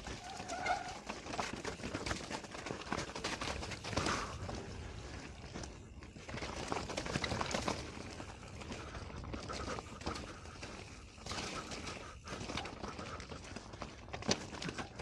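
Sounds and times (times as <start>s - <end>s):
mountain bike rattling over rocks: 0.0s - 15.0s.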